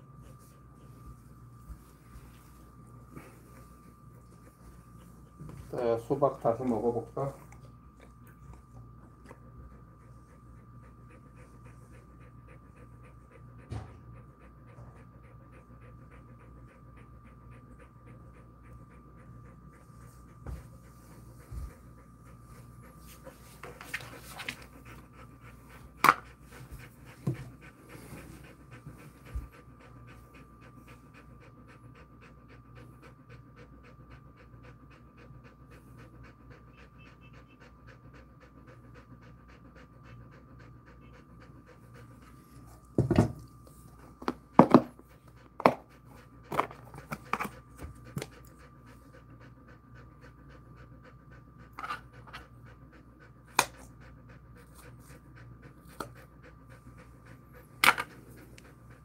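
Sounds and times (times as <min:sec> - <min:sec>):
dog panting: 0:00.0 - 0:59.0.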